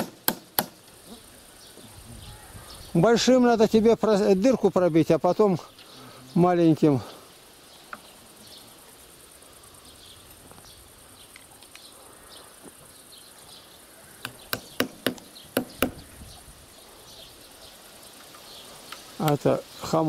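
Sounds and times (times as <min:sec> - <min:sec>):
hammer striking nail into wood: 0:00.0 - 0:00.8, 0:14.2 - 0:16.0.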